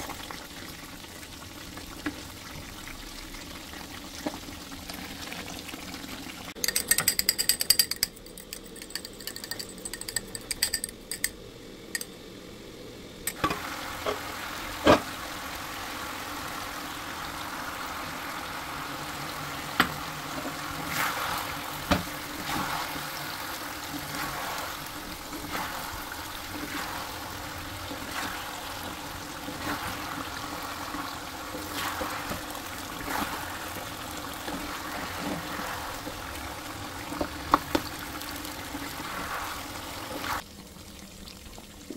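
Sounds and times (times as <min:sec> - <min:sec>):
chicken sizzling in a pan: 0:11.4 - 0:41.9.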